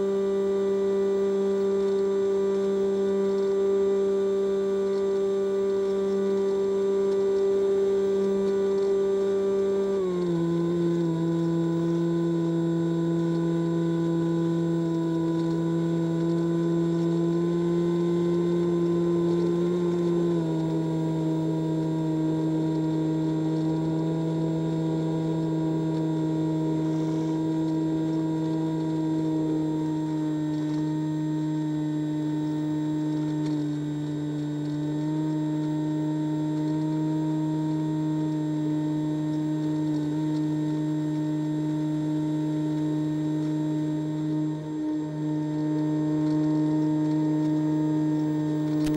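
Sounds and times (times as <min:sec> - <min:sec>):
electric motor and propeller droning: 0:00.0 - 0:48.9.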